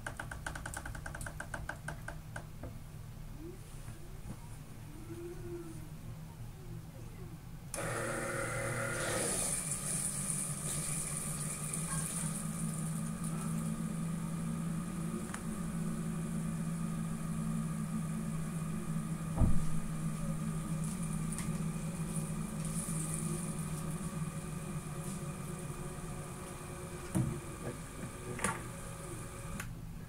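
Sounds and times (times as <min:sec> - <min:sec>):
pump and motors humming: 0:07.7 - 0:29.8.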